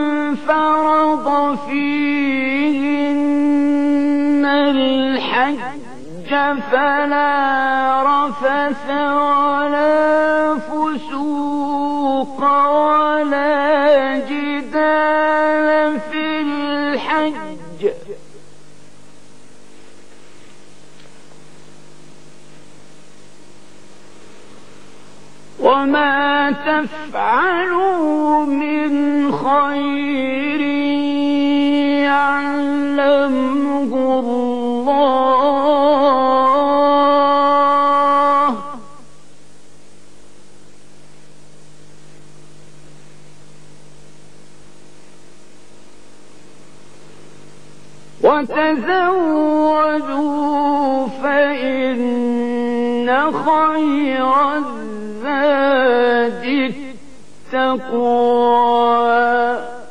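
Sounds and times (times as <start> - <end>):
man reciting chant: 0.0 - 18.4, 25.5 - 39.1, 48.2 - 59.9
low electrical hum: 0.0 - 59.9
tape hiss: 0.0 - 59.9.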